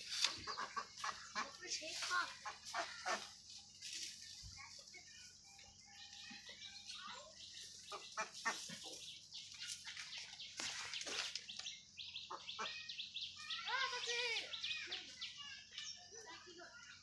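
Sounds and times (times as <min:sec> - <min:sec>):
ducks calling: 0:00.0 - 0:03.4, 0:07.8 - 0:11.4, 0:12.0 - 0:15.0.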